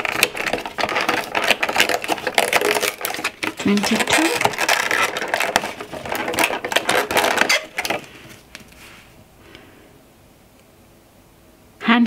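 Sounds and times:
cardboard tearing: 0.0 - 8.9
tissue paper rustling: 0.0 - 9.2.

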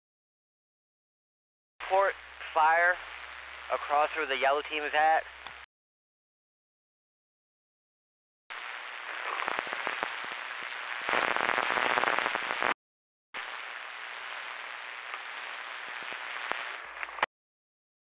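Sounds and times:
two-way radio hiss: 1.8 - 5.6, 8.5 - 12.8, 13.4 - 17.3.

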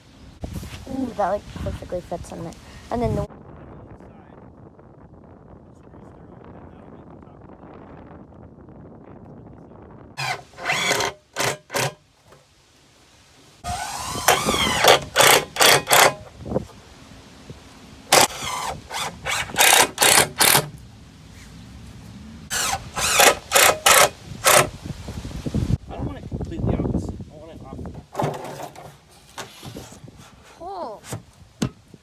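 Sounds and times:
cordless drill driving screws: 10.2 - 12.0, 13.6 - 16.3, 18.1 - 20.7, 22.5 - 24.7.

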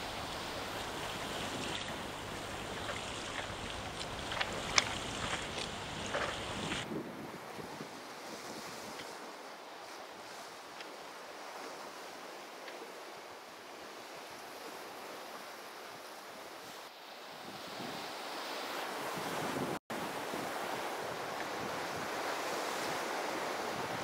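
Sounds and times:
wind buffeting microphone: 0.0 - 9.2
sea waves: 0.0 - 24.0.

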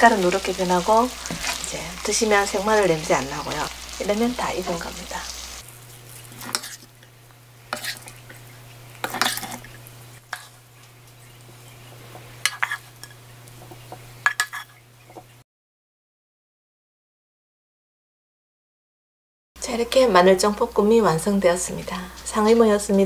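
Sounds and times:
wooden spoon scraping frying pan: 0.1 - 7.1, 7.7 - 10.7, 12.0 - 14.8.

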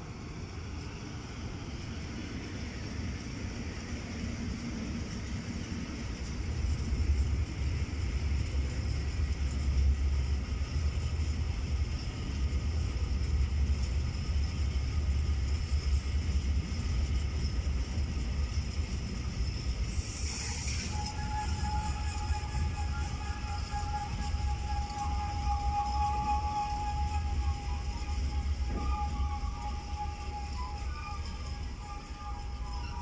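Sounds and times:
freight train wheels rumbling on rails: 0.0 - 33.0.

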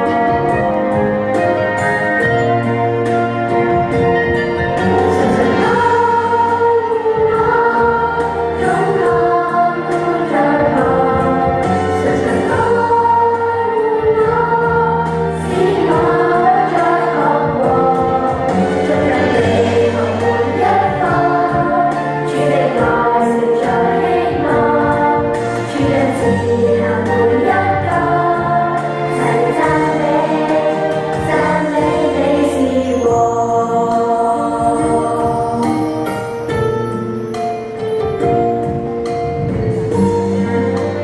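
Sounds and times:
sustained bass notes: 0.0 - 37.1, 38.2 - 41.0
instrumental accompaniment: 0.0 - 41.0
group singing: 5.0 - 36.0.

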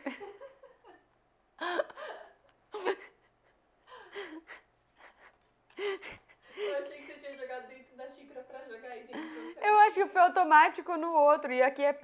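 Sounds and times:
woman laughing breathily: 1.6 - 7.0.

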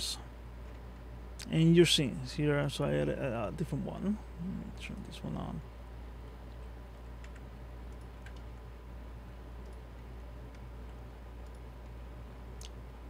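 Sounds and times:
steady low hum: 0.0 - 13.0
computer keyboard keystrokes: 7.2 - 8.6.

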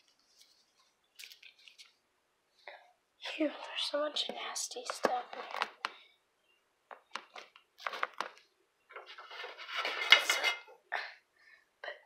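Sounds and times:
pots and pans clattering: 9.5 - 10.7.

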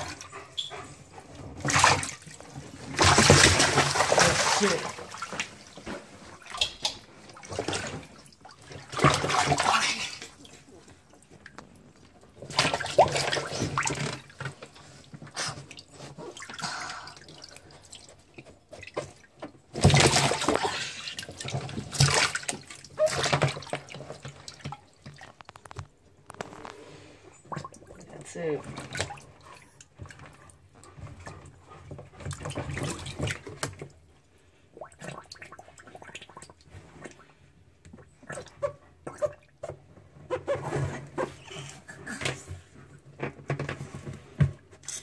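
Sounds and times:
water splashing in a plastic tub: 0.0 - 44.8
water dripping: 6.4 - 7.5.

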